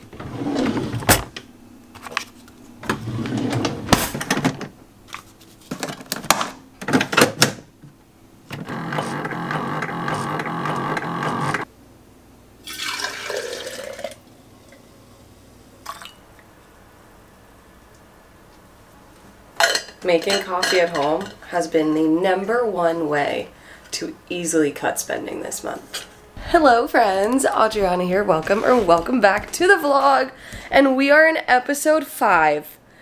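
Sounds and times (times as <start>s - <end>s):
drawer opening: 0.0s - 1.4s, 2.8s - 4.8s, 27.3s - 29.8s
coffee maker running: 8.6s - 11.6s, 12.6s - 14.8s
liquid pouring: 12.6s - 14.8s, 15.8s - 16.2s.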